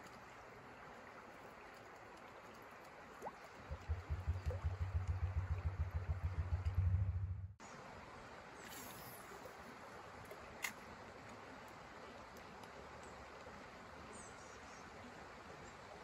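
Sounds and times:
low pulsing thrum: 0:03.6 - 0:07.6.

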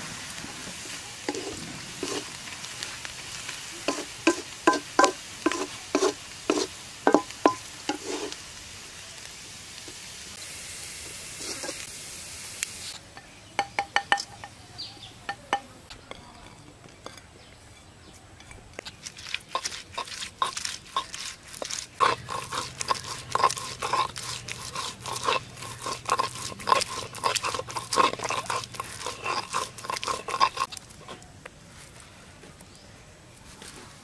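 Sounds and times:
stone grinding on stone slab: 0:01.3 - 0:02.3, 0:03.9 - 0:08.3, 0:18.4 - 0:30.8.

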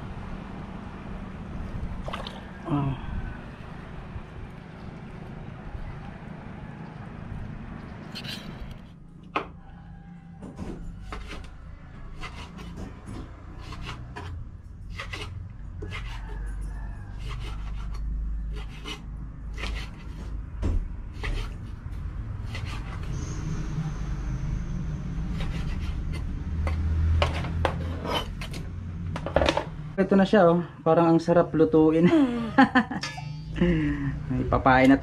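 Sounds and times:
knife scraping on rock: 0:13.6 - 0:16.3, 0:27.3 - 0:28.6.

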